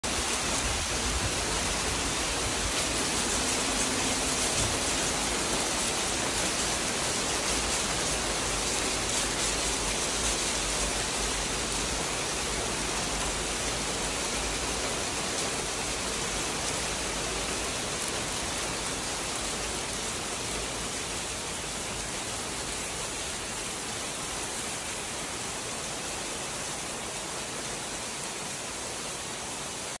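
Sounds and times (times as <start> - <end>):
heavy rain and hail on pavement: 0.0 - 30.0.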